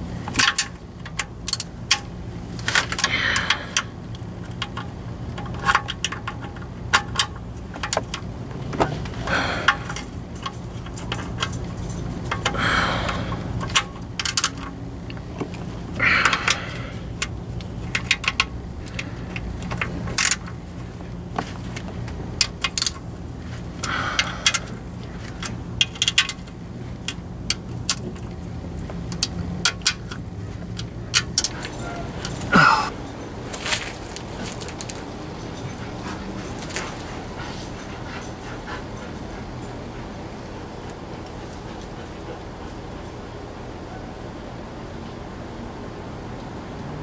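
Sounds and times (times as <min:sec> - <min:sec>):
low steady hum: 0:00.0 - 0:47.0
hand ratchet clicking: 0:00.3 - 0:20.8, 0:21.7 - 0:23.1, 0:23.7 - 0:32.7.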